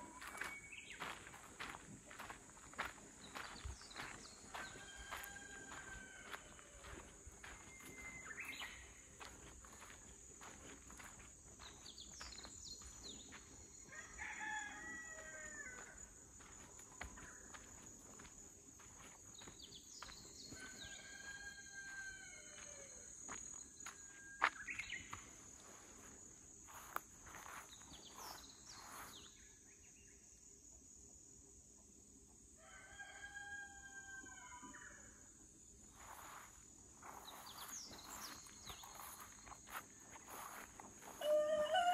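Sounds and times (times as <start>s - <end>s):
footsteps: 0.1s - 13.6s, 15.8s - 21.3s, 21.9s - 29.1s, 35.9s - 41.9s
rooster crowing: 4.5s - 7.0s, 13.9s - 16.0s, 20.6s - 23.1s, 32.6s - 34.8s, 41.1s - 41.9s
high insect drone: 35.2s - 41.9s.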